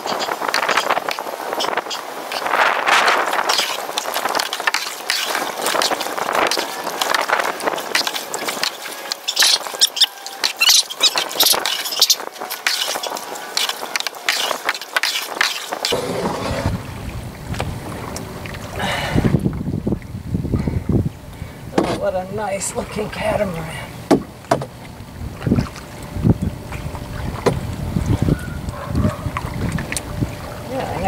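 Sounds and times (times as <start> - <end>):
paddle splashing in water: 0.0 - 19.4, 21.7 - 31.0
low rumble: 15.9 - 22.8.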